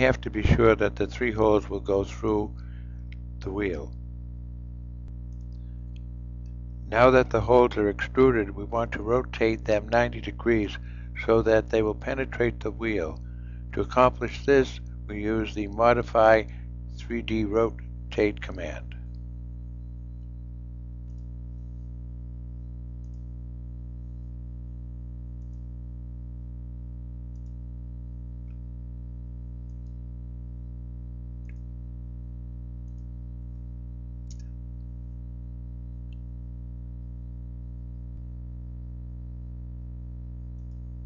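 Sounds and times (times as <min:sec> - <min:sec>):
electrical hum: 0:00.0 - 0:41.0
computer mouse clicks: 0:21.0 - 0:21.3, 0:23.0 - 0:23.3, 0:27.3 - 0:27.6, 0:29.7 - 0:30.0, 0:34.2 - 0:34.5, 0:40.6 - 0:40.9.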